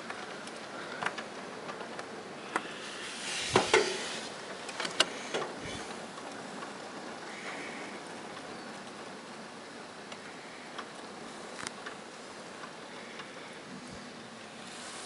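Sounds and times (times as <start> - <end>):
raindrops ticking on surface: 0.0 - 3.3, 4.0 - 14.8
steady rain hiss: 0.0 - 15.0.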